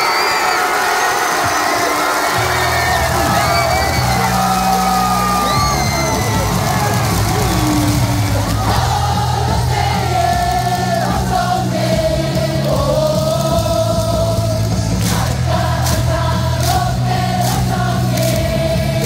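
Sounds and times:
stadium crowd singing in unison: 0.0 - 19.0
stadium pa music with bass: 1.2 - 19.0
sharp claps: 14.6 - 18.5.

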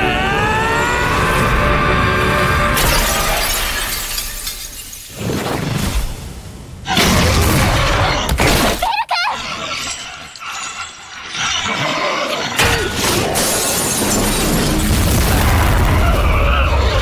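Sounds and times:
loud crash with shattering debris: 2.8 - 5.3, 12.6 - 17.0.

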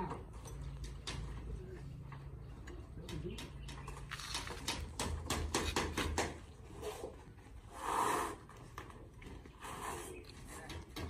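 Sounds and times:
sharp knocks and clacks: 2.3 - 6.6.

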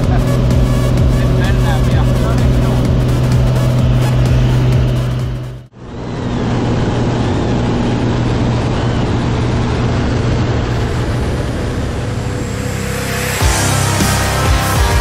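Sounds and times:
propeller aircraft engine droning: 0.0 - 15.0
wind rushing: 9.5 - 15.0.

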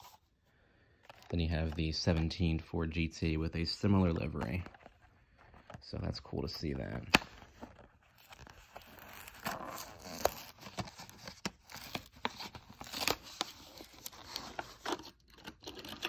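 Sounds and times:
cardboard ripping: 7.0 - 16.0.

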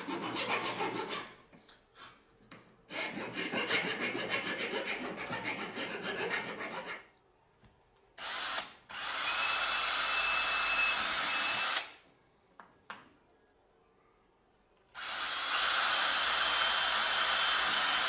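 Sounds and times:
hand file rasping on wood: 0.0 - 1.4, 2.9 - 7.1
power drill whining into wood: 8.2 - 12.0, 15.0 - 18.0.

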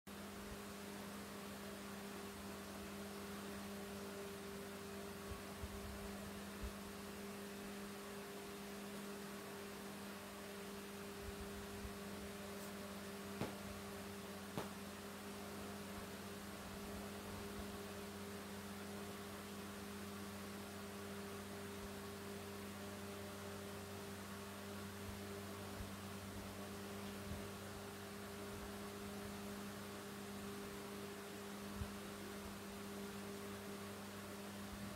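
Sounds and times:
steady hum: 0.1 - 34.9.

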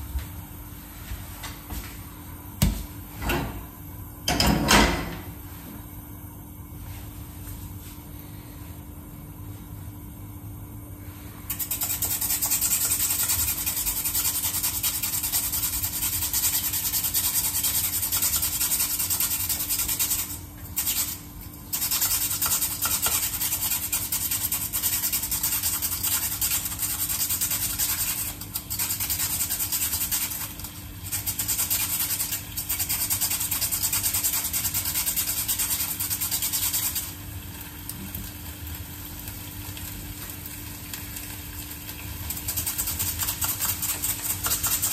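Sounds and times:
potato rasping on slicer blades: 11.5 - 37.1.

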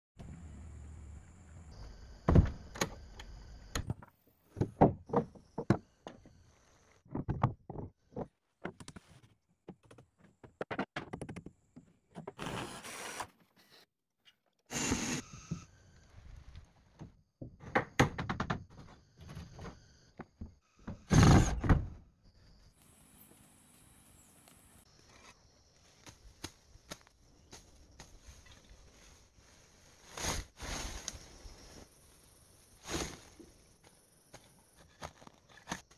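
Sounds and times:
wooden knocks and thumps: 3.8 - 6.4, 7.1 - 12.3, 17.0 - 21.9.

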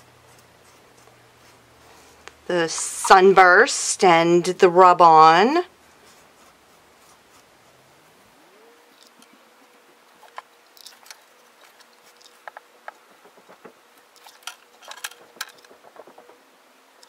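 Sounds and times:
paintbrush ticks and scratches: 0.0 - 4.1, 5.6 - 7.9, 10.2 - 14.5
faint steady hum: 0.0 - 17.0.

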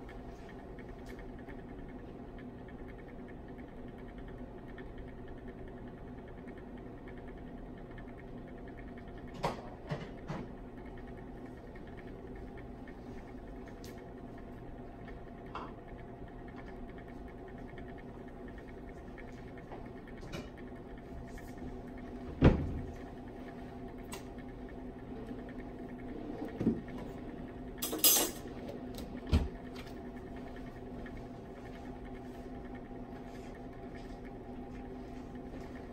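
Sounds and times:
electrical hum of lab equipment: 0.0 - 35.9.

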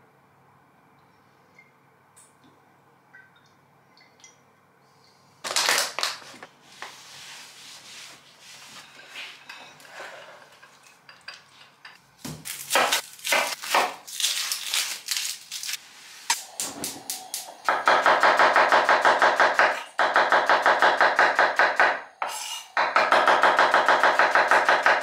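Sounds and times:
onion skin crackling: 12.5 - 15.8.

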